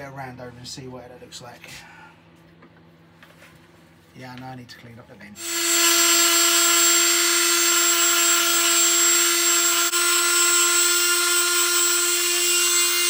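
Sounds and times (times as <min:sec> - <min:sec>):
electric orbital sander running: 0:05.4 - 0:13.0.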